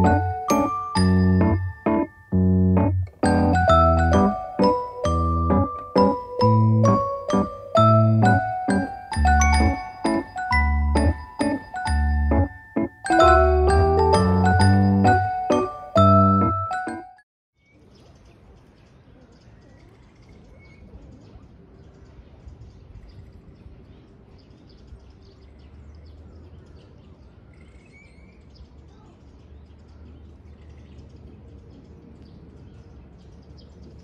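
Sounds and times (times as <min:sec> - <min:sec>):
piano music: 0:00.0 - 0:17.2
faint bird chirps: 0:17.6 - 0:34.0.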